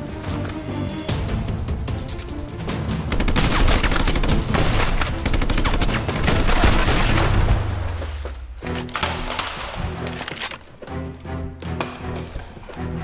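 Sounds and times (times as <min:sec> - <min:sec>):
rapid gunfire: 0:03.1 - 0:07.6.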